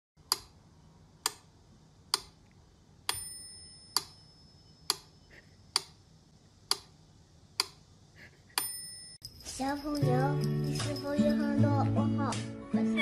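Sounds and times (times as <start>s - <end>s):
metronome bell ding: 3.1s - 4.8s, 8.6s - 12.1s.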